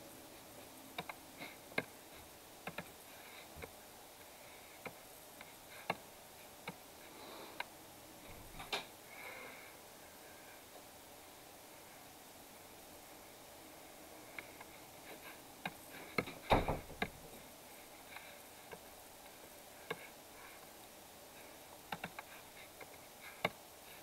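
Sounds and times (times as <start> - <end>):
low hiss: 0.0 - 24.0
computer mouse clicks: 1.0 - 1.2, 2.6 - 2.9.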